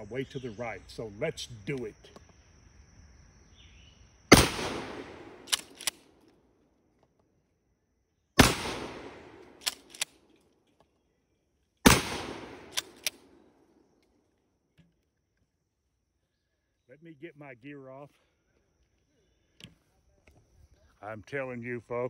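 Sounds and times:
shotgun blasts: 4.3 - 6.0, 8.4 - 10.1, 11.8 - 13.4
shotgun pump clacks: 5.5 - 6.0, 9.6 - 10.2, 12.7 - 13.2.

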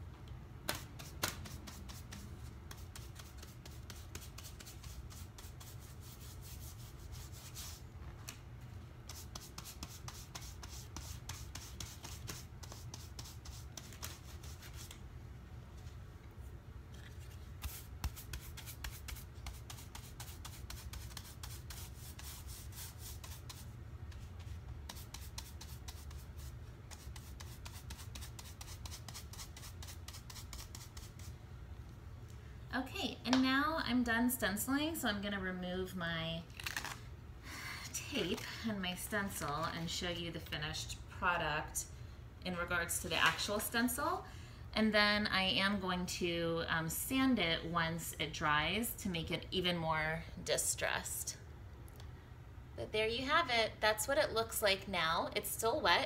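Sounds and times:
steady low hum: 0.0 - 56.0
scratchy brush rubbing strokes: 1.0 - 7.8, 9.1 - 14.9, 17.1 - 31.4.

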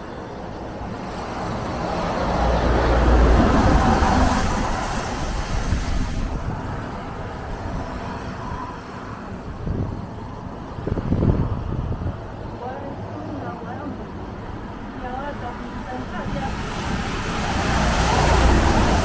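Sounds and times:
tyre hiss on wet road: 0.9 - 8.4, 15.7 - 19.0.

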